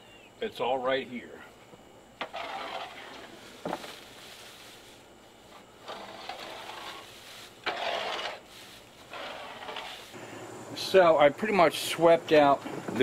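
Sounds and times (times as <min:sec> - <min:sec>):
scoop scraping wood shavings: 0:02.2 - 0:10.2.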